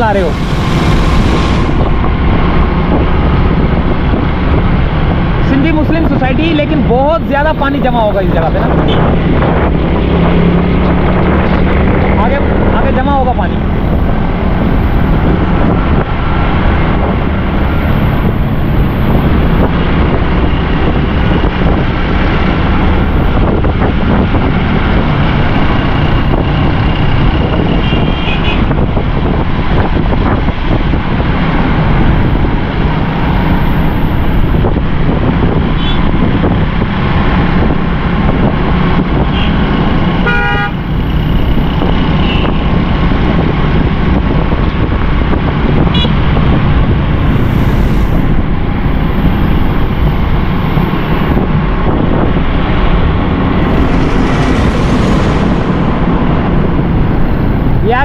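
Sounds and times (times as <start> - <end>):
wind rushing: 0.0 - 58.0
vehicle horn toots: 27.8 - 28.7, 40.2 - 40.8
motorcycle riding on wet road: 42.8 - 58.0.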